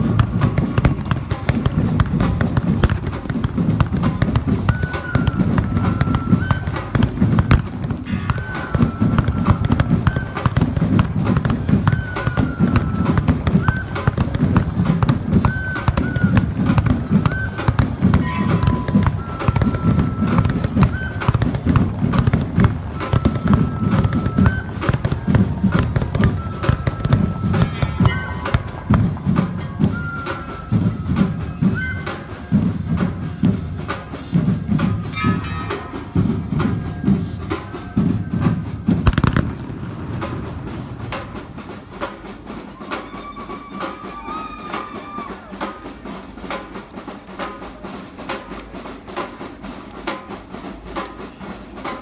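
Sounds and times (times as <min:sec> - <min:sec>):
steam whistle blasts: 0:04.7 - 0:07.5, 0:08.1 - 0:11.0, 0:11.7 - 0:14.6, 0:15.4 - 0:21.8, 0:22.9 - 0:32.8, 0:42.7 - 0:45.8
low rumble and clatter: 0:38.1 - 0:42.4.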